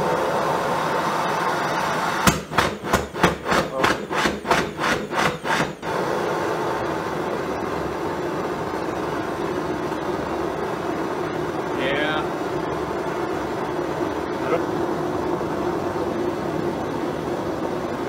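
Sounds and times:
propane torch rushing: 0:00.0 - 0:18.0
torch chugging pops: 0:02.2 - 0:06.1.

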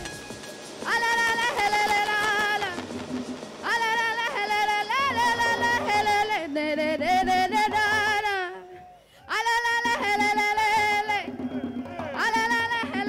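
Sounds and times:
woman singing long held notes: 0:00.8 - 0:03.0, 0:03.6 - 0:13.0.

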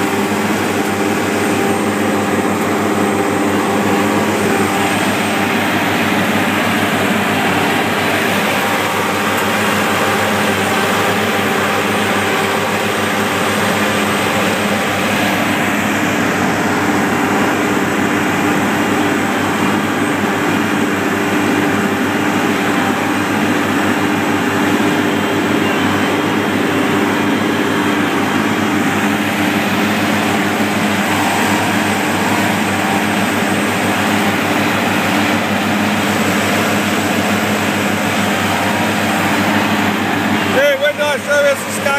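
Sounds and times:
diesel engine droning: 0:00.0 - 0:41.9.

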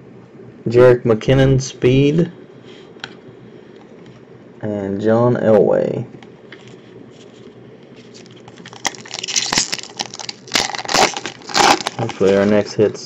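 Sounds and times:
foil wrapper crinkling: 0:08.0 - 0:12.9.

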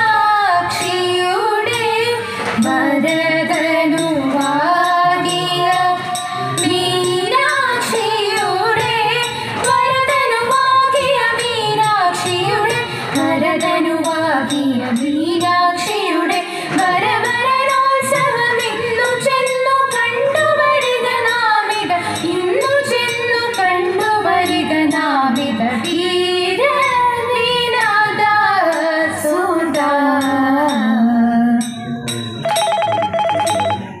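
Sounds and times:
women singing: 0:00.0 - 0:31.8
rhythmic beat: 0:01.7 - 0:10.6, 0:31.9 - 0:34.0.

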